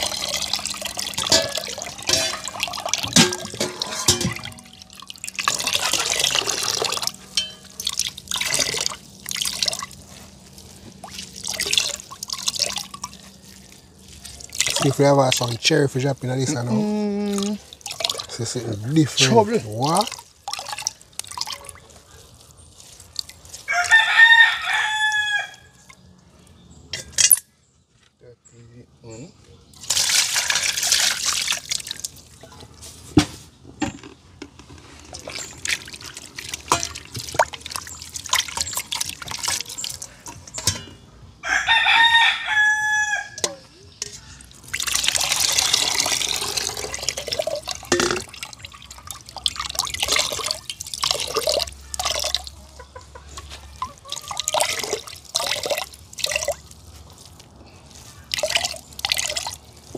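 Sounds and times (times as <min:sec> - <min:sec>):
splashing and pouring water: 0:00.0 - 0:25.1, 0:29.8 - 0:33.2, 0:34.4 - 0:41.0, 0:43.4 - 0:59.9
knocks and clinks: 0:01.2 - 0:04.8, 0:07.3 - 0:07.9
rooster crowing: 0:23.7 - 0:25.8, 0:41.4 - 0:43.5.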